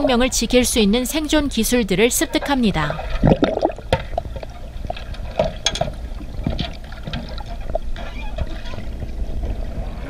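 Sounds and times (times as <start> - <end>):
underwater bubbling and gurgling: 2.8 - 10.0.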